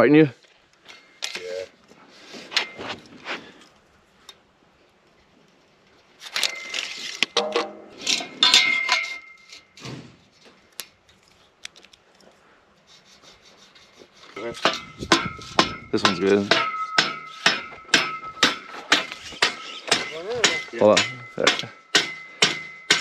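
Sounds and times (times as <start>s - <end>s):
metal clinking and scraping: 6.2s - 12.3s, 14.2s - 23.0s.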